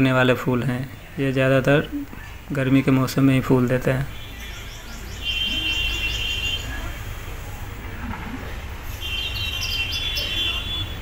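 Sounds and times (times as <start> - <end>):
bird trilling and chirping: 9.2 - 10.7.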